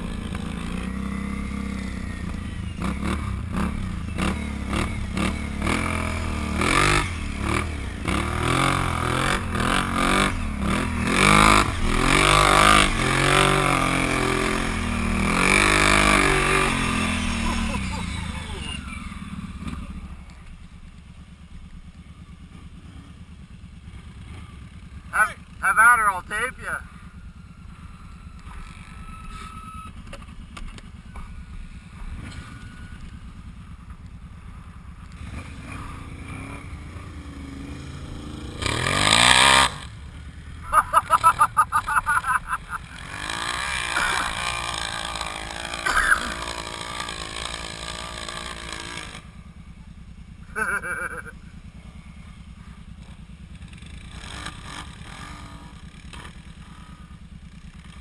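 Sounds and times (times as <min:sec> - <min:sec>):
quad engine idling: 0:00.0 - 0:58.0
quad engine revving hard: 0:02.8 - 0:20.0, 0:35.2 - 0:40.0, 0:40.6 - 0:49.4, 0:53.6 - 0:58.0.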